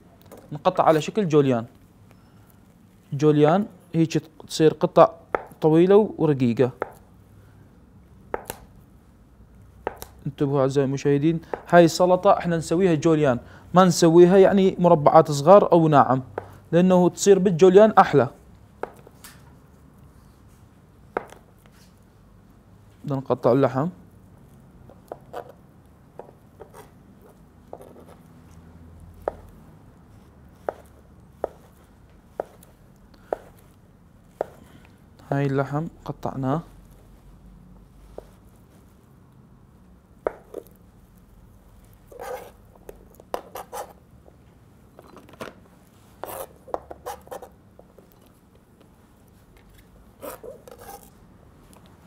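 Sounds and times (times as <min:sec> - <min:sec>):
knife cutting on cutting board: 0:26.2 - 0:28.2, 0:30.6 - 0:31.8, 0:32.4 - 0:32.7, 0:42.1 - 0:42.6, 0:43.3 - 0:44.0, 0:46.2 - 0:47.6, 0:50.2 - 0:51.1.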